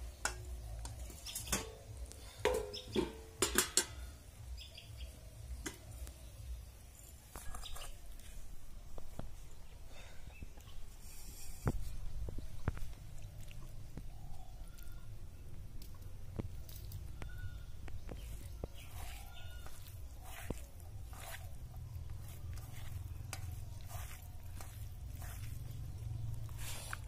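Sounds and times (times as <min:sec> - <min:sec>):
steel ladle clinking on metal: 0:01.2 - 0:04.0.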